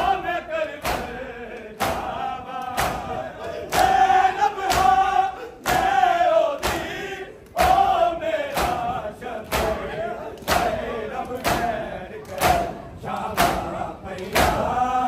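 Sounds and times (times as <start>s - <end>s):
men beating chests in unison: 0.0s - 15.0s
men chanting a lament: 0.0s - 15.0s.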